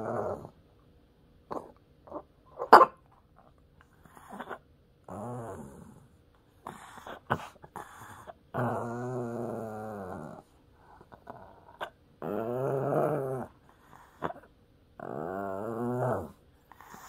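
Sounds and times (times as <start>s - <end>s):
small dog grumbling and huffing: 0.0s - 0.6s, 4.0s - 17.0s.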